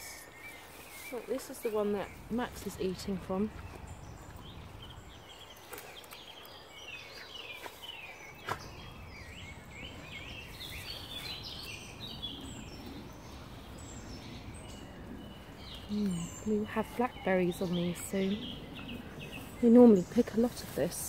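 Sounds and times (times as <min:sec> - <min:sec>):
outdoor ambience: 0:00.0 - 0:21.0
songbird chirping and warbling: 0:00.0 - 0:21.0.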